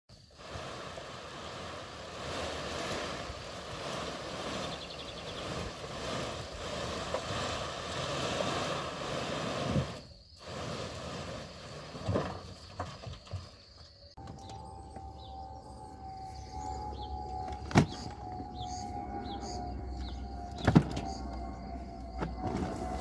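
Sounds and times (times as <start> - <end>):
soil sliding and tumbling: 0.1 - 13.8.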